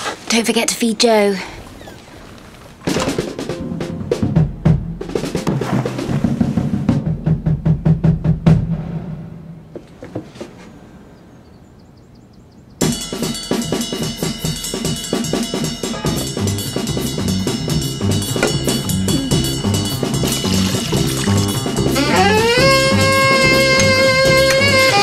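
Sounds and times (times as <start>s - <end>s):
drum hits: 2.9s - 9.9s, 15.7s - 25.0s
full band with drum kit and bass: 6.8s - 9.1s, 12.8s - 25.0s.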